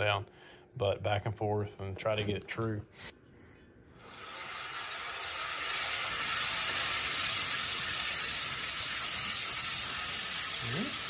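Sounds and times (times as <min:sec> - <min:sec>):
bandsaw blade hissing: 0:04.0 - 0:11.0.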